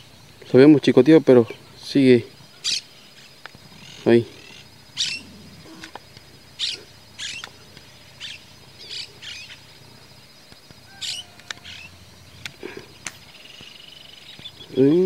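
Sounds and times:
birds chirping: 0:00.0 - 0:15.0
faint high whine: 0:00.0 - 0:15.0.

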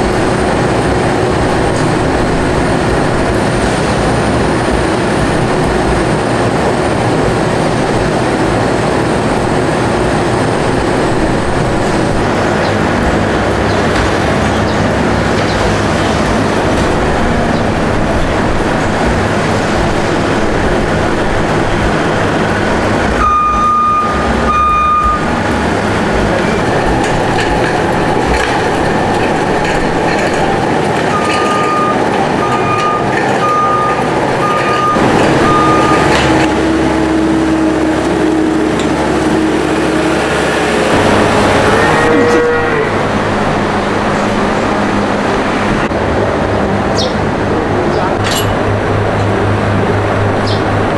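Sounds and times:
diesel engine running: 0:00.0 - 0:50.9
reversing alarm beeping: 0:23.2 - 0:25.6, 0:31.0 - 0:36.9.

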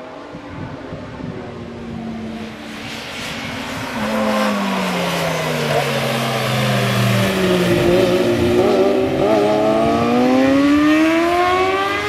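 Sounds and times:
motorcycle engines revving: 0:00.7 - 0:12.0.

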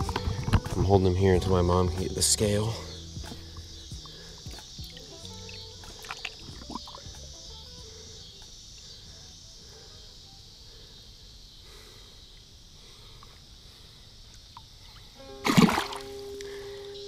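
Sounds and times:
insects droning: 0:00.0 - 0:17.0
fish splashing in water: 0:05.9 - 0:07.0, 0:15.4 - 0:16.2.

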